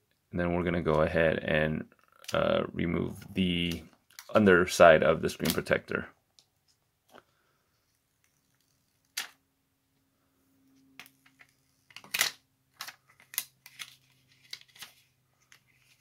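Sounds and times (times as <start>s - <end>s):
plastic film crinkling: 11.3s - 16.0s.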